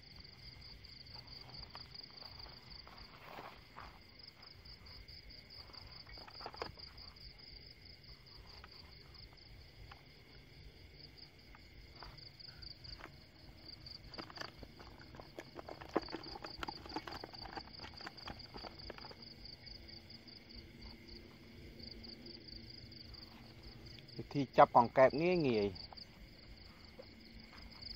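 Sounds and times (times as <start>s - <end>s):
insects trilling: 0.0s - 27.9s
footsteps in dry grass: 1.2s - 5.1s.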